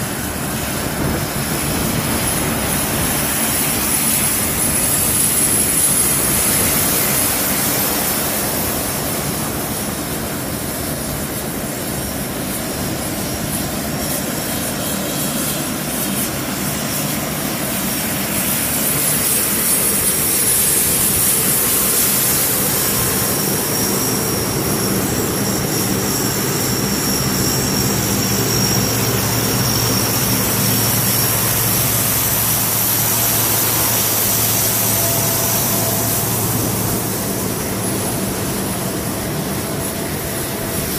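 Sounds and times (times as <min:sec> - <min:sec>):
high turbine whine: 0:00.0 - 0:40.9
propeller drone: 0:00.0 - 0:40.9.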